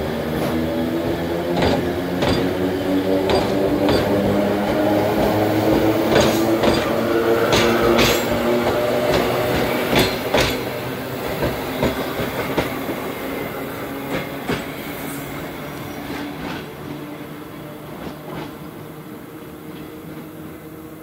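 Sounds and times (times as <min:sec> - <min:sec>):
train hum: 0:00.0 - 0:21.0
train wheels clicking over rail joints: 0:00.4 - 0:13.0.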